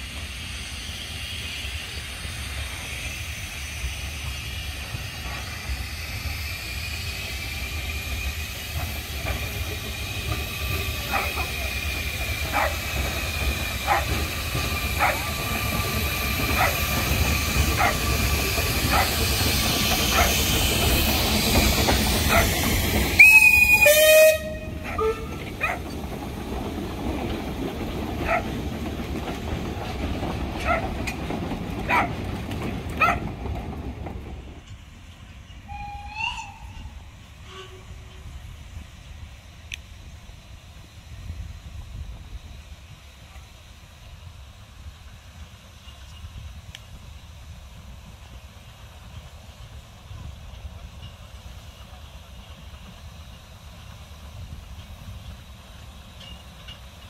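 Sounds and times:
steam train passing: 0.0s - 57.0s
wheels clicking over rail joints: 8.0s - 36.9s
shrill train whistle blast: 23.1s - 25.5s, 35.7s - 38.2s.

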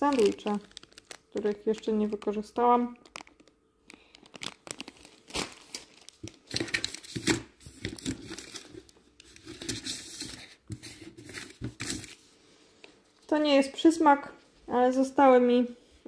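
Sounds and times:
plastic bag crinkling: 0.0s - 12.2s.

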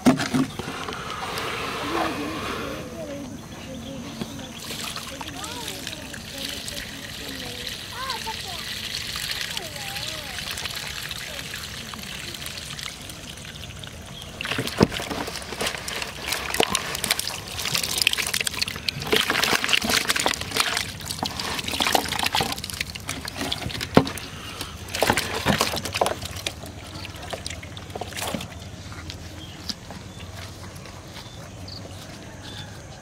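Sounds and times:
water sloshing in plastic basin: 0.0s - 2.3s, 3.8s - 30.6s
water splashing and slapping: 4.4s - 29.0s.

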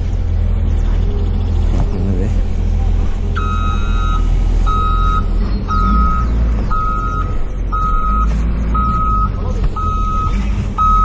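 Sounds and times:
heavy engine running low: 0.0s - 11.0s
reversing alarm beeping: 3.4s - 11.0s.

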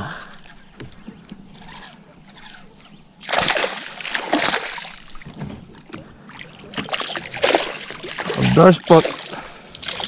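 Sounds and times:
fish splashing at surface: 3.2s - 5.3s, 5.9s - 10.0s.

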